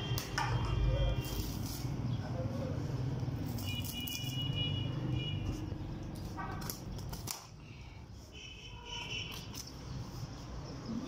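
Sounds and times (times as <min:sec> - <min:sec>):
knife cutting and scraping meat: 0:03.4 - 0:04.6, 0:09.0 - 0:10.3.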